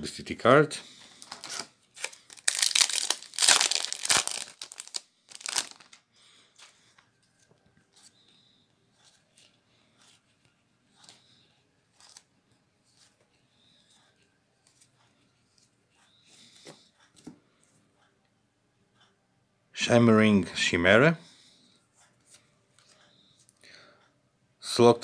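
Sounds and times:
foil wrapper tearing and crinkling: 1.2 - 6.0
playing cards clicking and sliding: 11.9 - 13.2.

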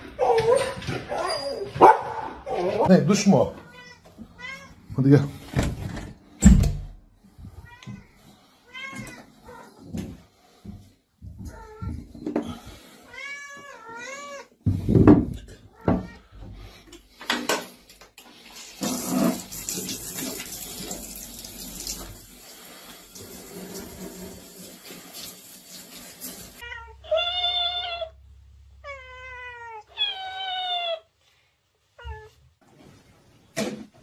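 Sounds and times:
cat meowing: 3.6 - 4.8, 13.1 - 14.5, 26.6 - 28.2, 28.8 - 31.1
tap water running into sink: 18.4 - 26.6.

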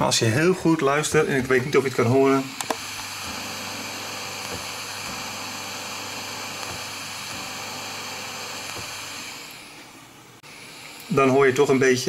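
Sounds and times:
loudspeaker hiss: 11.0 - 12.0.

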